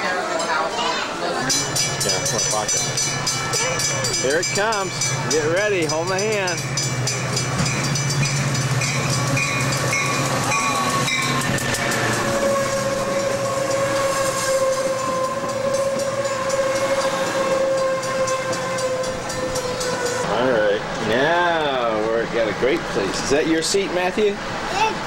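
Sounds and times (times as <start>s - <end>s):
locomotive engine hum: 0.1s - 25.0s
train bell ringing: 0.3s - 20.7s
wheels clacking over rail joints: 1.4s - 21.1s
train brakes squealing: 6.2s - 20.6s.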